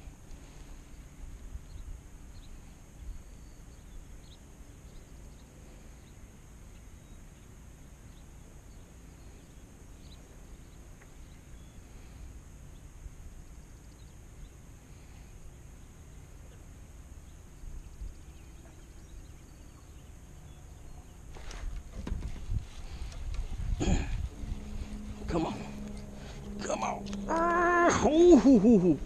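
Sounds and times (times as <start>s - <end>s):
faint bird chirps: 1.6s - 21.3s
wind rumble on microphone: 21.4s - 29.0s
high-pitched hum: 22.6s - 29.0s.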